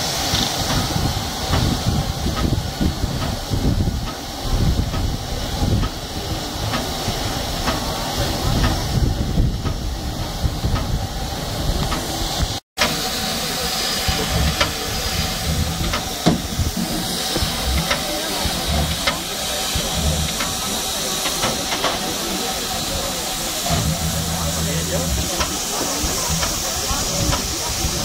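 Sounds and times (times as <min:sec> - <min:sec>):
steam hissing from locomotive: 0:00.0 - 0:28.0
low rumbling: 0:13.9 - 0:21.3, 0:22.6 - 0:28.0.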